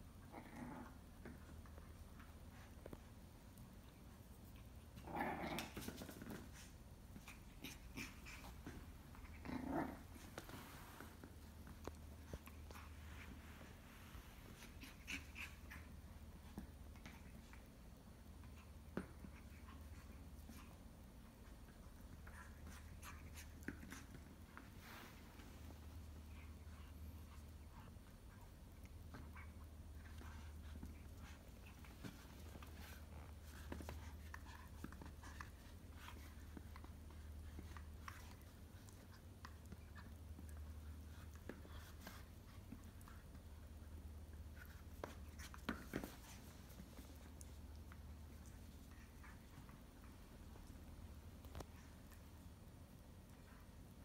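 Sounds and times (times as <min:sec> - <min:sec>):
low room hum: 0:00.0 - 0:54.0
puppy clicks and scuffles: 0:44.5 - 0:52.4.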